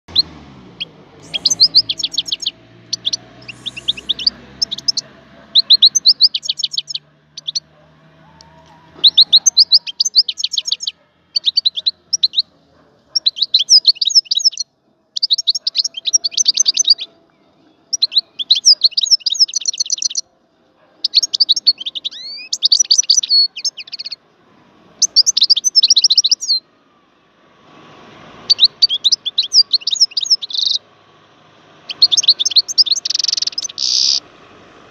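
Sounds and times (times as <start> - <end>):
goldfinch twittering song: 0.1 - 7.7, 9.0 - 12.5, 13.2 - 14.6, 15.2 - 17.2, 17.9 - 20.2, 21.0 - 24.2, 25.0 - 26.6, 28.4 - 30.8, 31.9 - 34.2.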